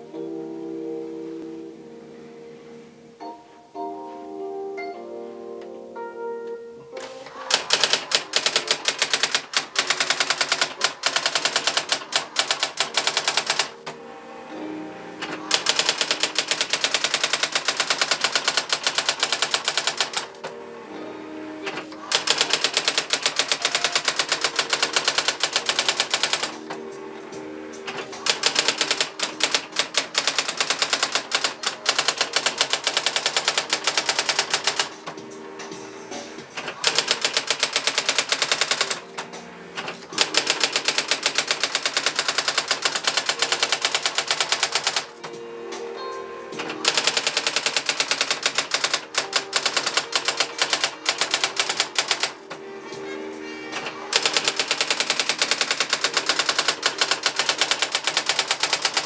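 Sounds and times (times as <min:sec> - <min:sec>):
electronic typewriter typing: 0:07.0 - 0:14.0, 0:15.2 - 0:20.5, 0:21.6 - 0:45.4, 0:46.6 - 0:52.6, 0:53.8 - 0:59.0.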